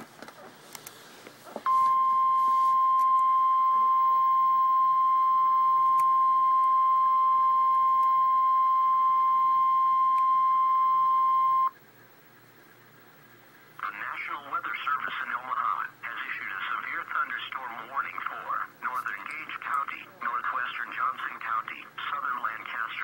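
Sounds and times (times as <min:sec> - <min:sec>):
loud single-pitched alarm beep: 0:01.7 - 0:11.7.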